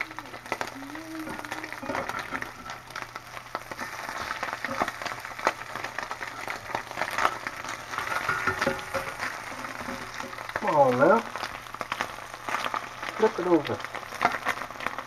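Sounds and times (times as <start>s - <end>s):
meat sizzling in a skillet: 0.0s - 15.0s
metal spatula scraping pan: 6.3s - 10.4s.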